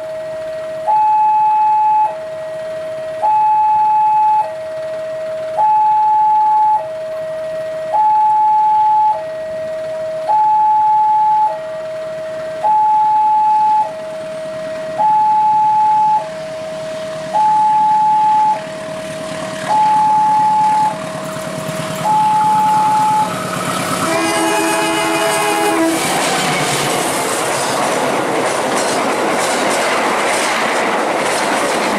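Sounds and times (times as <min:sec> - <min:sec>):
two-tone level crossing alarm: 0:00.0 - 0:21.1, 0:21.9 - 0:26.0
train rumble: 0:01.7 - 0:31.9.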